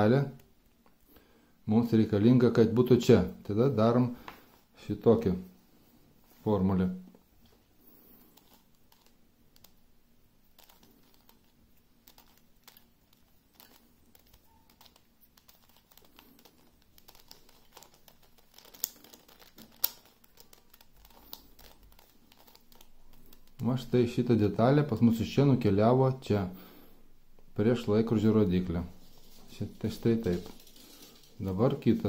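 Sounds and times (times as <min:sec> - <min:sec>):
plastic puzzle clicking: 0:08.4 - 0:09.8, 0:10.5 - 0:23.6.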